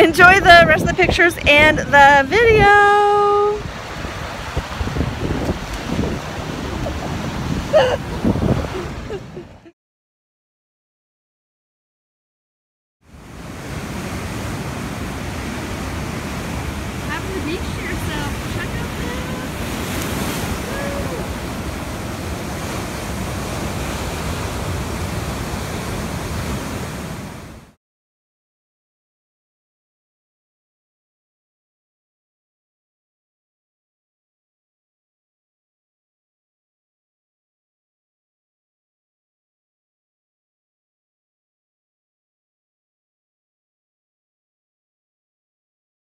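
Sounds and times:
surf washing over rocky beach: 0:00.0 - 0:09.4, 0:13.1 - 0:27.8
wind gusting on microphone: 0:00.0 - 0:09.7, 0:13.2 - 0:27.7.

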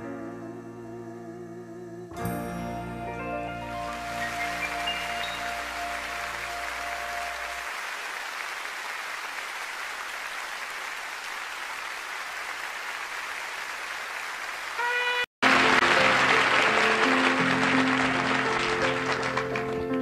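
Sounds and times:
instrumental song intro: 0:00.0 - 0:07.7, 0:15.4 - 0:20.0
held song notes: 0:00.1 - 0:07.7
brief chord: 0:02.2 - 0:07.7
audience applause: 0:03.7 - 0:20.0.

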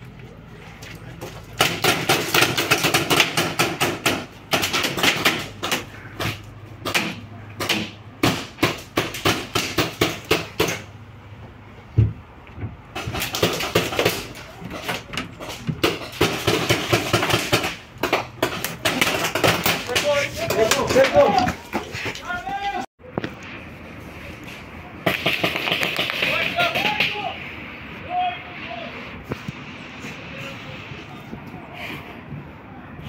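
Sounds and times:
paintball markers firing: 0:25.1 - 0:27.2.

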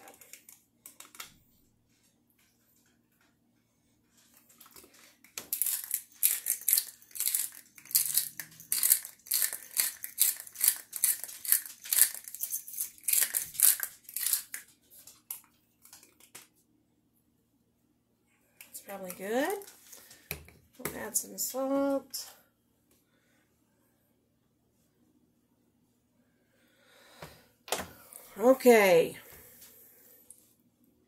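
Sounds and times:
pepper grinder crunching peppercorns: 0:04.6 - 0:16.3.

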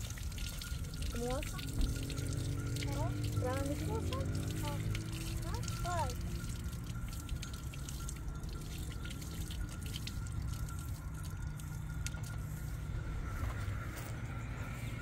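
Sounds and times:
water trickling from tap: 0:00.0 - 0:13.4
water drips and splashes: 0:00.0 - 0:15.0.

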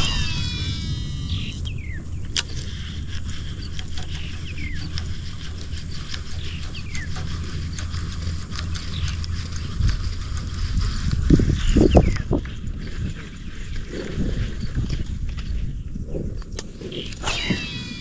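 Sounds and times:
bird falling call: 0:00.0 - 0:02.6, 0:17.0 - 0:18.0
fishing reel clicks: 0:00.0 - 0:07.4
wind rumble on microphone: 0:00.0 - 0:18.0.

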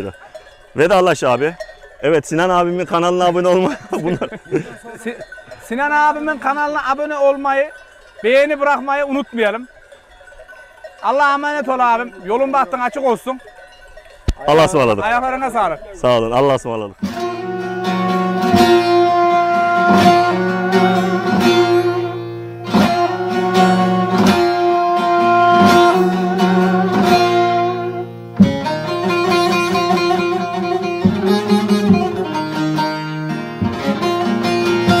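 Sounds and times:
plucked string instrument melody: 0:17.0 - 0:35.0
strummed strokes: 0:17.0 - 0:35.0.

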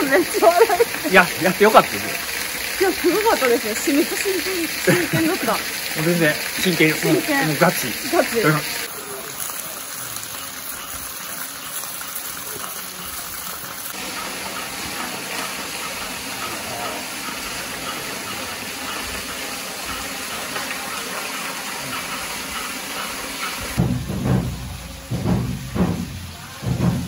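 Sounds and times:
waterfall rushing: 0:00.0 - 0:27.0.

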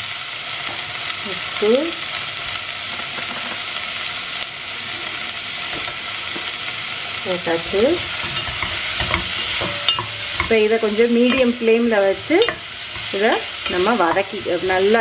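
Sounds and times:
vegetables sizzling in oil: 0:00.0 - 0:15.0
spatula knocking against pot: 0:07.7 - 0:14.9.

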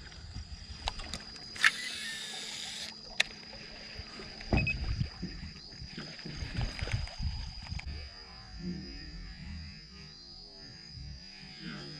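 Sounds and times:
fishing reel spool whirring: 0:00.7 - 0:04.4
reel sharp click: 0:00.8 - 0:03.4.

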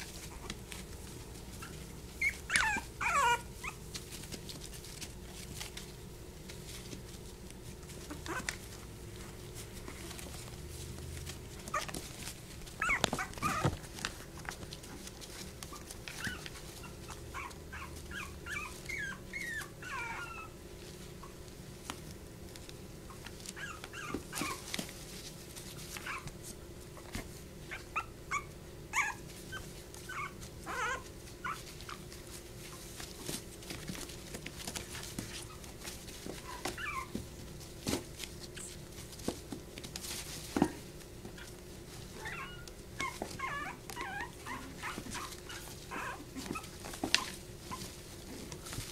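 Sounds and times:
puppies whimpering and yipping: 0:00.0 - 0:05.9, 0:06.6 - 0:08.9, 0:09.5 - 0:21.4, 0:23.0 - 0:39.4, 0:40.0 - 0:48.9
faint steady hum: 0:00.0 - 0:48.9.

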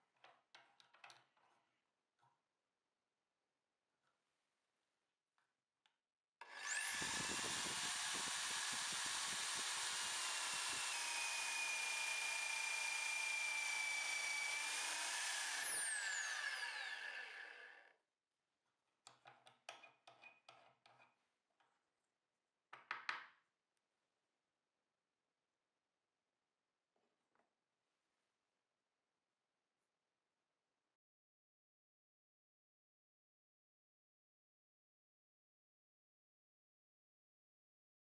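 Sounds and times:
electric drill boring into wood: 0:06.4 - 0:17.9.

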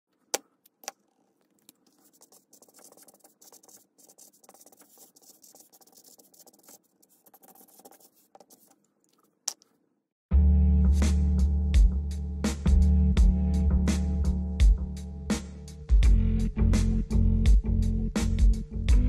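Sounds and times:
marker pen scratching paper: 0:01.7 - 0:08.9.

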